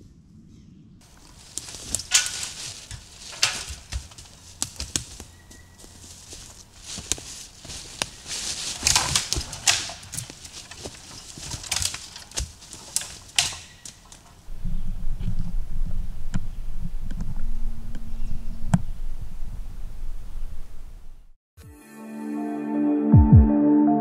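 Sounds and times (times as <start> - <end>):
low handling rumble: 1.0 - 21.4
footsteps on metal ladder: 1.1 - 14.5.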